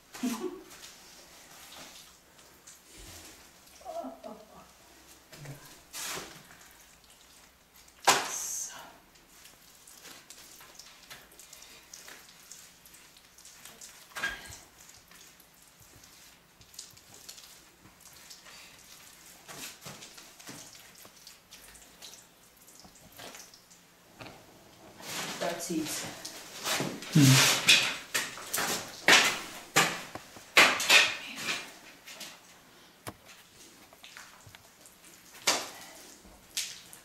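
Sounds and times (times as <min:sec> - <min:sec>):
wet clay squelching: 0:09.2 - 0:23.6.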